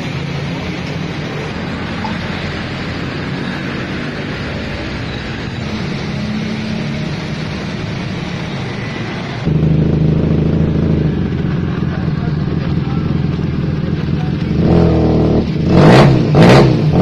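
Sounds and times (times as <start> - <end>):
motorcycle engine idling: 9.5 - 15.1.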